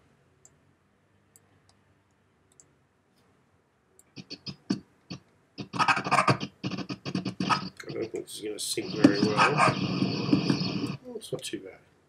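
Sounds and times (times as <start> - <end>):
faint mouse clicks: 0.4 - 0.6, 1.3 - 3.3.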